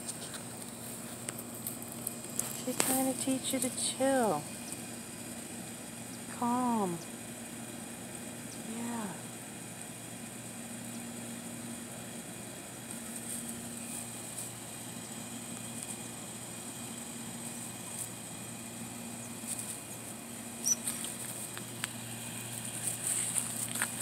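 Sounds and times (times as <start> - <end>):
leaves rustling: 12.7 - 24.0.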